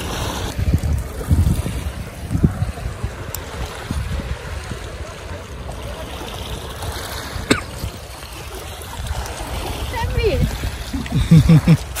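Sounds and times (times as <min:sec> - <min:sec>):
waves washing on pebbles: 0:00.0 - 0:12.0
wind buffeting microphone: 0:00.0 - 0:12.0.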